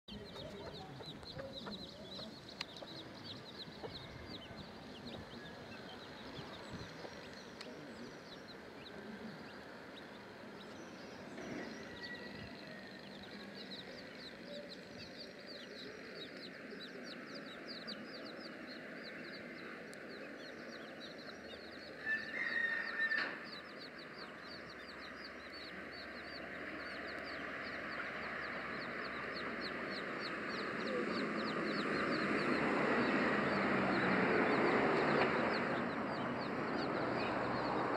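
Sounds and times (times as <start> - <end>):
chicks peeping: 0.1 - 37.9.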